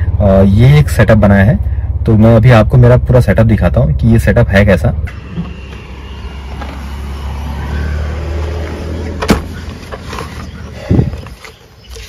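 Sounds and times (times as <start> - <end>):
car tailgate opening: 8.4 - 10.5.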